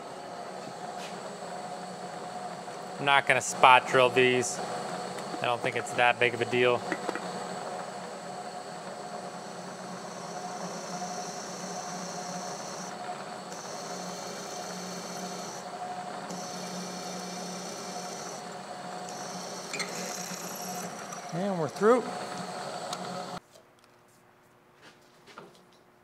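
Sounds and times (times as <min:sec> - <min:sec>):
drill cutting into metal bar: 0:10.2 - 0:12.9, 0:13.5 - 0:15.6, 0:16.2 - 0:18.4, 0:19.0 - 0:22.0.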